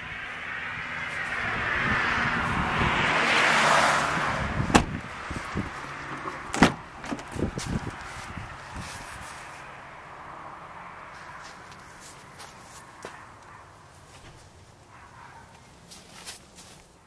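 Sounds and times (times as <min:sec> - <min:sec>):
car passing: 0:00.0 - 0:15.9
car door latch clicking: 0:04.7 - 0:05.0, 0:06.1 - 0:07.5.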